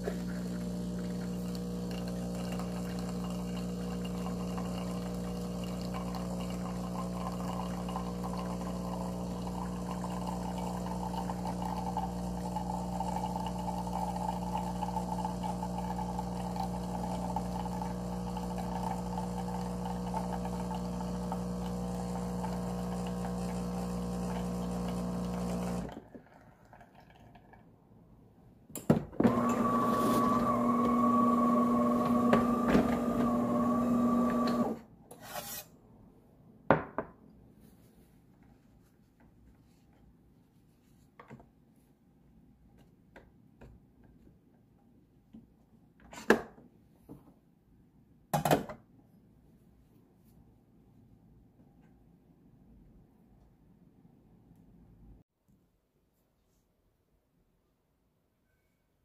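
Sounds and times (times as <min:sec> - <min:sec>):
espresso machine pump humming: 0:00.0 - 0:26.0, 0:29.2 - 0:34.8
liquid pouring into a jug: 0:00.1 - 0:27.8, 0:29.2 - 0:34.8.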